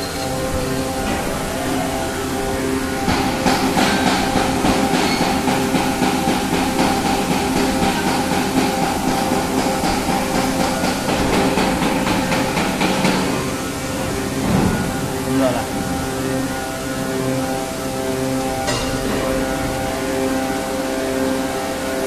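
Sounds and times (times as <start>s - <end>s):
injection moulding machine humming: 0.0s - 22.0s.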